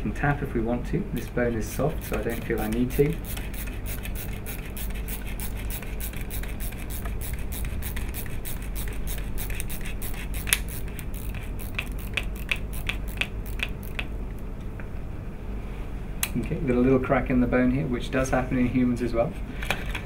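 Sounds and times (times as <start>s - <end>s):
screw grinding into model bone: 2.0s - 14.1s.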